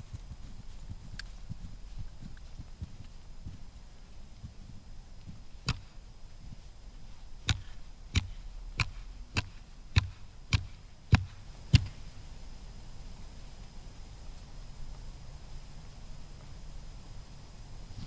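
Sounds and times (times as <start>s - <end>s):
ice chisel chopping ice: 7.4s - 11.9s.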